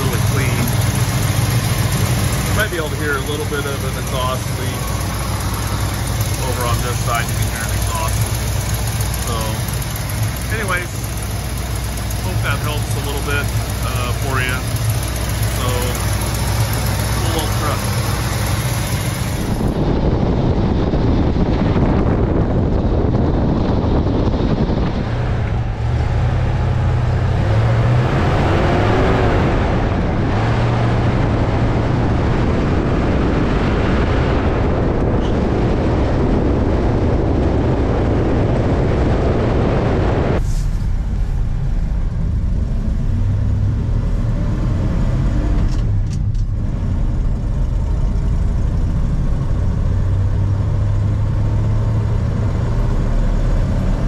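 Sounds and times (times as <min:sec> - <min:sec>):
pickup truck engine running: 0:00.0 - 0:33.4
road and wind noise: 0:00.0 - 0:54.0.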